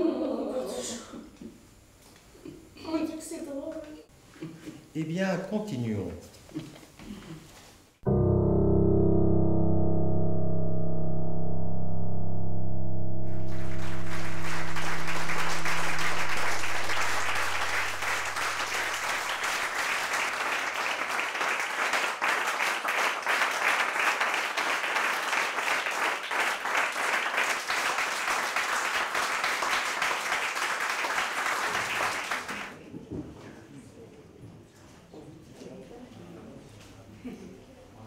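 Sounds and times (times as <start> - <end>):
held musical chord with low drone: 8.1 - 20.1
audience applauding: 13.3 - 32.7.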